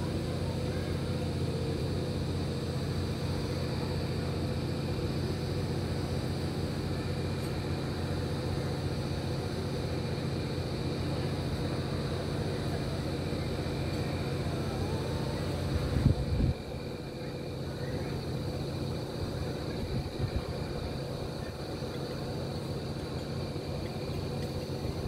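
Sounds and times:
constant hum: 0.0 - 25.0.

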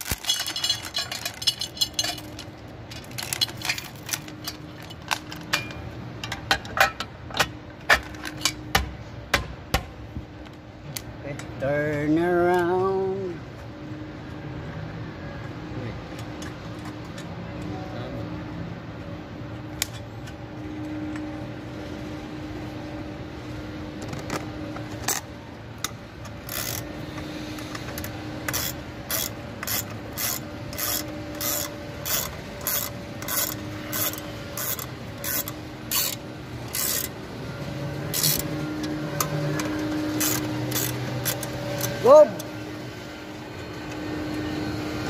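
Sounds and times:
ratchet wrench clicking: 25.8 - 26.9, 27.6 - 37.2, 38.1 - 42.0.

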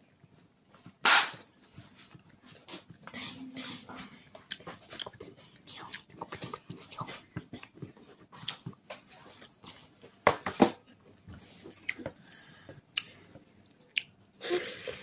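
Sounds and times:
wet chewing: 4.4 - 9.8.

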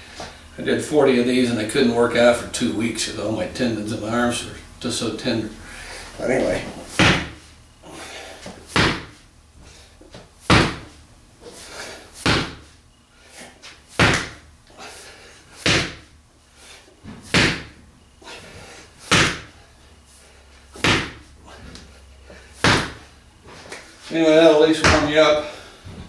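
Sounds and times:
ball thudding on rubber floor: 6.9 - 7.4, 8.5 - 9.2, 10.1 - 11.0, 12.2 - 12.7, 14.0 - 14.4, 15.6 - 16.1, 17.0 - 17.8, 19.1 - 19.5, 20.8 - 21.8, 22.6 - 23.1, 24.8 - 25.2.

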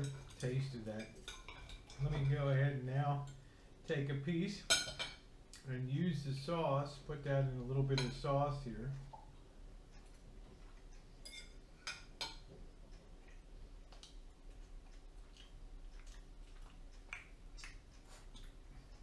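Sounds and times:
quiet chewing: 8.9 - 19.0
metal fork clinking on plate: 11.2 - 12.4.

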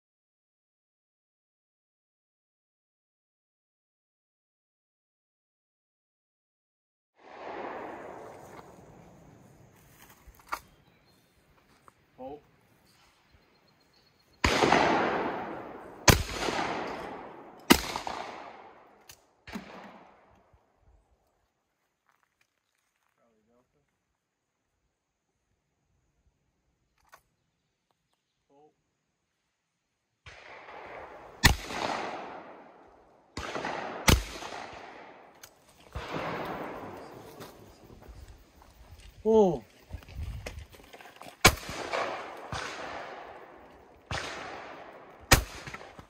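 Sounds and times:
shotgun shots echoing: 7.2 - 8.8, 14.4 - 20.3, 30.2 - 35.3, 35.9 - 37.8, 41.4 - 46.0.

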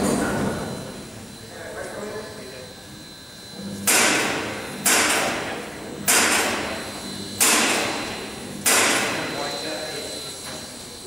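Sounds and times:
heavy hammer ringing on metal: 3.8 - 6.8, 7.4 - 9.5.

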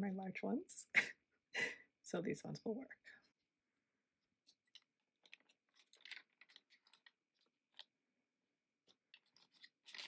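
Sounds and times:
plastic crinkling: 4.4 - 8.0, 8.8 - 10.0.

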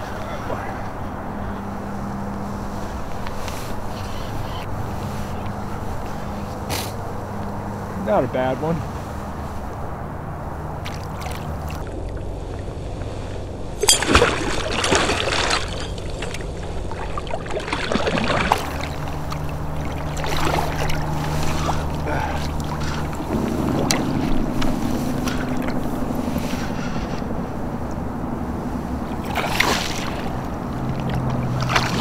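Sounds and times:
steady low rumble: 0.0 - 32.0
water slapping against kayak hull: 10.8 - 11.8, 14.0 - 26.2, 29.0 - 32.0
splashing with sharp clicks: 10.8 - 12.7, 13.8 - 26.2, 29.0 - 32.0.

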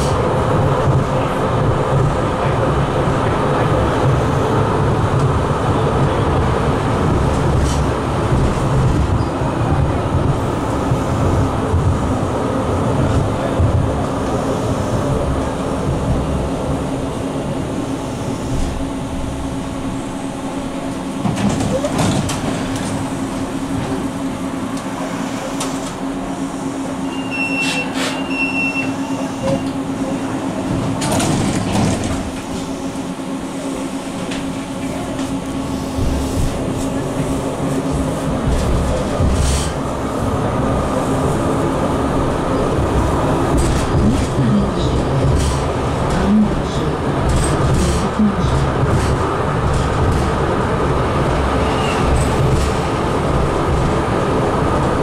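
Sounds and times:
tram doors moving: 0.0 - 55.0
tram rolling noise: 0.0 - 55.0
high beeping door signal: 27.0 - 29.7.

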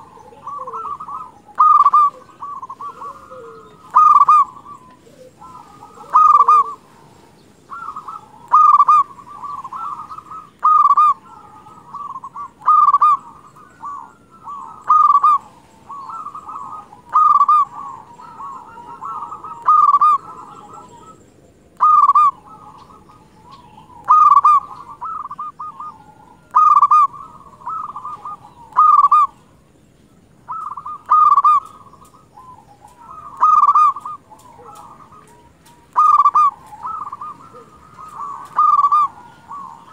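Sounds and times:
soft rolling coos: 0.0 - 21.2
dove cooing: 0.0 - 39.9.

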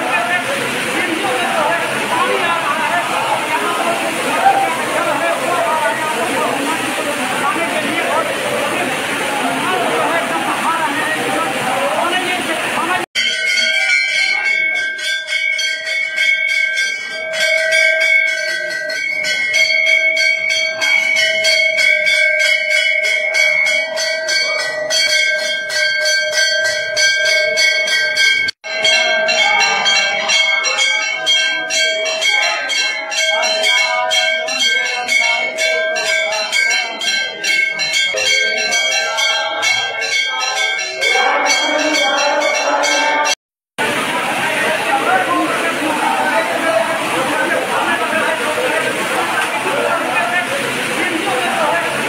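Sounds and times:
brass bells clanging: 13.1 - 52.0.

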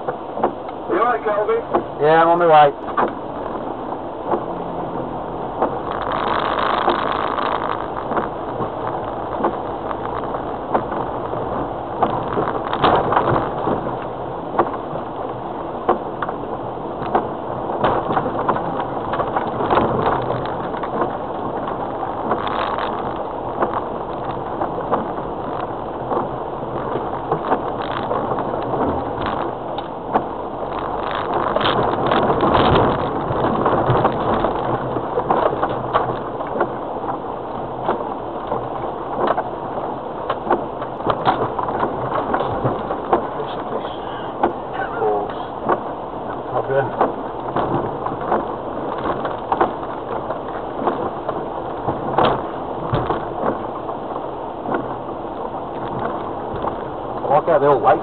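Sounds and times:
body and suspension knocks and rattles: 0.0 - 58.0.

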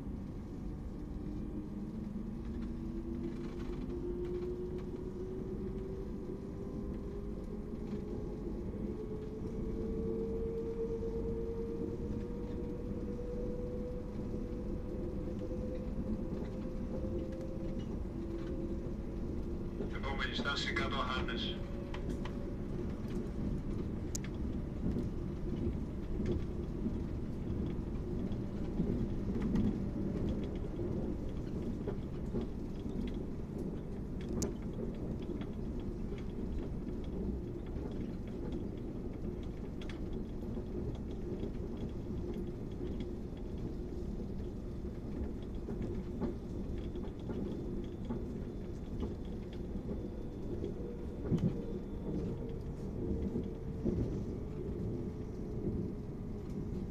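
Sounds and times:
train wheels rumbling on rails: 0.0 - 56.9
faint clicks: 21.9 - 25.1, 29.4 - 55.8.

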